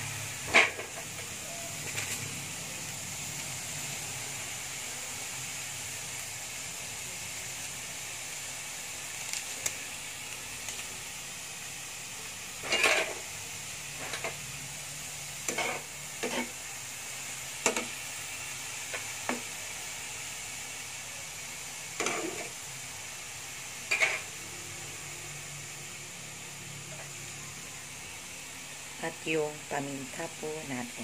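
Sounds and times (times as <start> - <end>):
vegetables sizzling in a pan: 0.0 - 31.0
spatula scraping a pan: 0.5 - 1.0, 12.6 - 13.3, 15.4 - 16.6, 22.0 - 22.6, 23.9 - 24.3.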